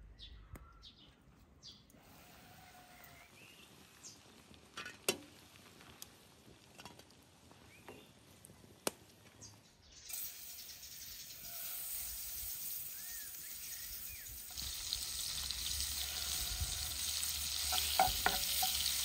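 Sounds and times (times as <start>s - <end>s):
butter sizzling in frying pan: 10.1s - 19.0s.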